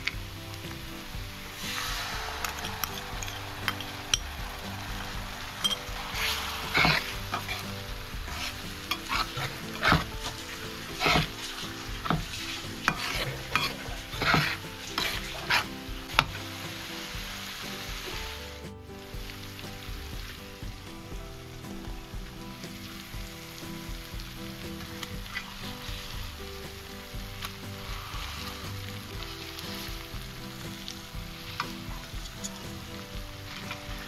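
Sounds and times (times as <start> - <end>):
onions sizzling in a pan: 0.0 - 34.0
metal spatula scraping a pan: 1.5 - 17.6.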